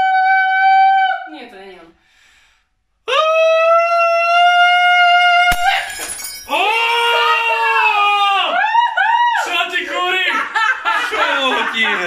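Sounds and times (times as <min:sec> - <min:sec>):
glass shattering: 0:05.5 - 0:06.9
excited shouting: 0:06.5 - 0:12.0.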